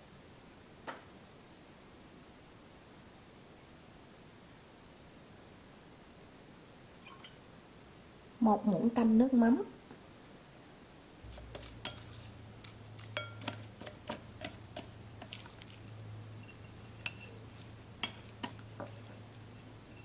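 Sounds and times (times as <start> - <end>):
low steady hum: 0.0 - 20.0
chopsticks tapping ceramic bowl: 13.0 - 15.4.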